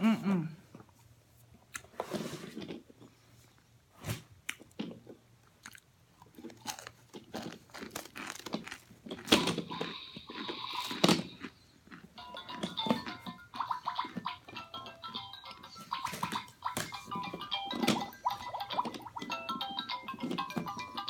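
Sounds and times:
crunchy food being bitten: 4.5 - 12.1
quiet chewing: 4.5 - 12.2.

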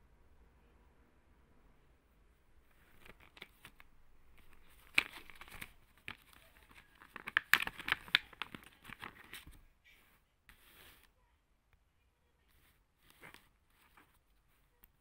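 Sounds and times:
plastic blister pack crackling: 2.7 - 9.6.

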